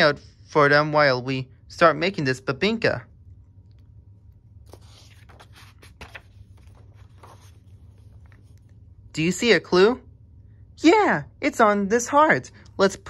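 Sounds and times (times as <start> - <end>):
low steady hum: 0.0 - 13.0
book pages rustling: 3.7 - 8.9.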